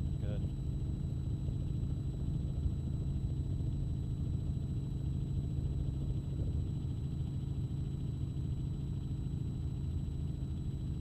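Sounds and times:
helicopter cabin rumble: 1.5s - 7.1s.

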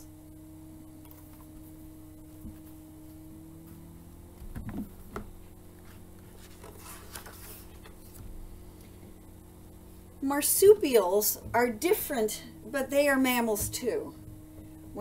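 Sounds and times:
steady low hum: 0.0s - 15.0s
knocks on a book: 4.4s - 5.4s
page rustling: 5.8s - 8.3s.

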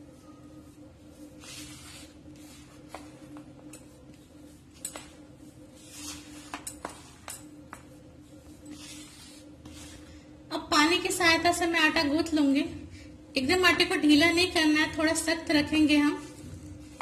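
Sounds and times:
hand rubbing flour in a bowl: 0.0s - 10.3s
steady low hum: 0.0s - 17.0s.

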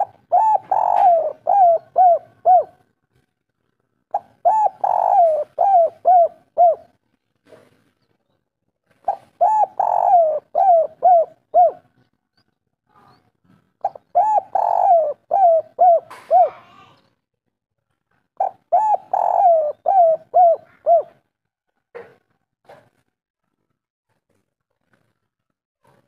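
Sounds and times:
dove cooing: 0.0s - 2.9s, 4.1s - 7.0s, 8.9s - 12.0s, 13.8s - 16.9s, 18.4s - 21.3s.

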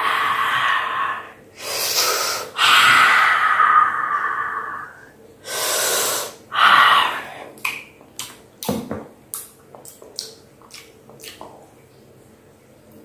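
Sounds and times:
mouth smacks and clicks: 7.6s - 11.7s.

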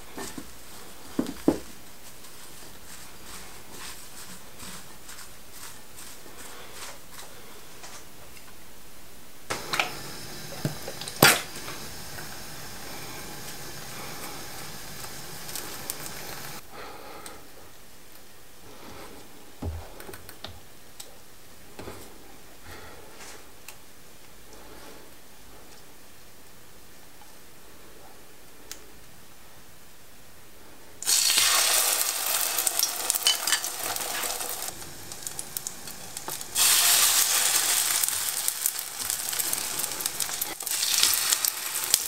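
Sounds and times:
chopsticks tossing chives in a bowl: 0.1s - 8.1s, 31.1s - 42.0s.

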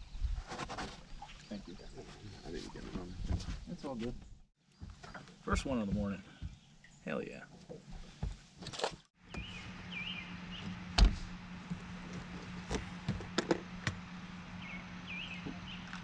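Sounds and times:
steady low hum: 9.2s - 16.0s
small bird chirping: 9.3s - 10.8s.

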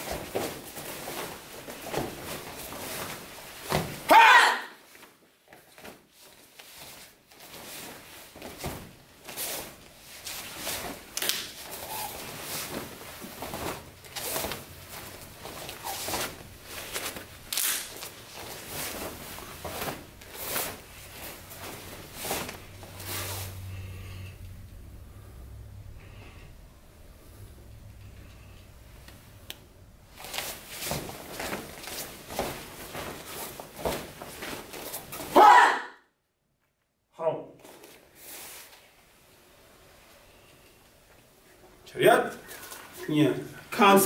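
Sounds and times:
uniform snaps and swishes: 4.9s - 23.4s, 29.0s - 35.4s
bare feet striking foam mats: 30.2s - 35.4s.

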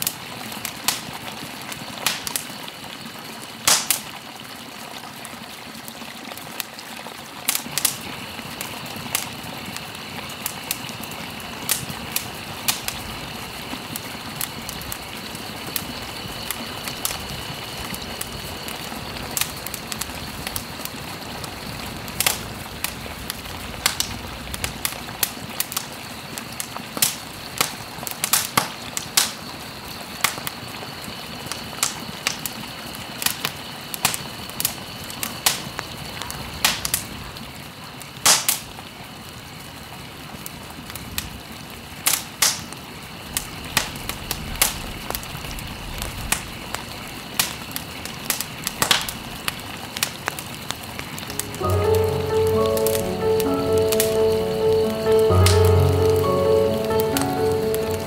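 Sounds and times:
sharp crackling pops: 3.7s - 4.1s, 48.3s - 50.2s
faint high tones: 51.3s - 58.0s.

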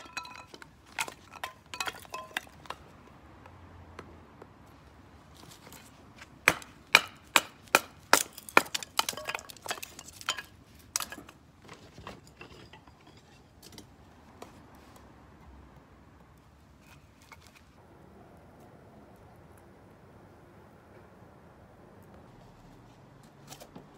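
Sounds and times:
blade chopping wood: 6.4s - 11.4s
wood cracking and splintering: 6.4s - 12.0s.

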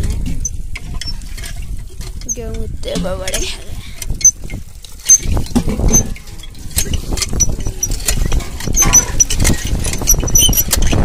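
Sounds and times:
hand pump clanking and squeaking: 0.0s - 11.0s.

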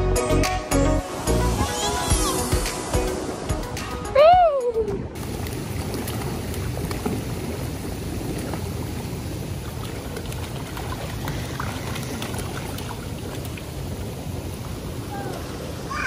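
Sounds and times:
hot tub jets bubbling: 0.9s - 16.0s
feet splashing water: 5.2s - 14.8s.

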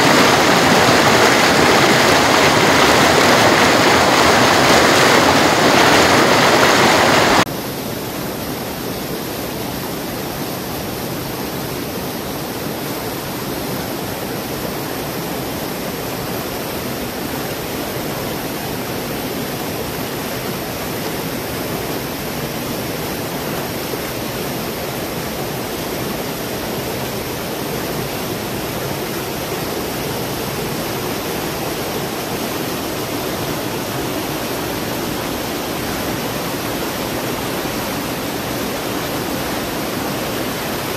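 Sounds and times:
river water rushing: 0.0s - 40.9s.

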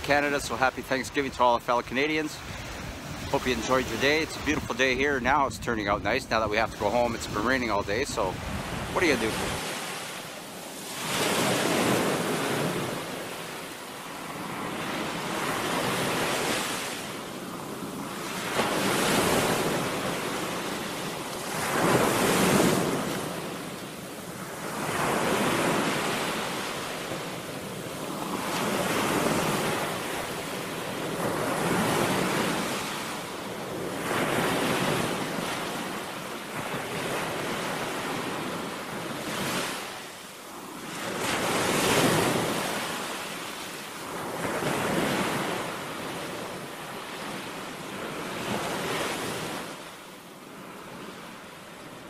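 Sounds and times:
waves breaking on shore: 0.0s - 52.0s.

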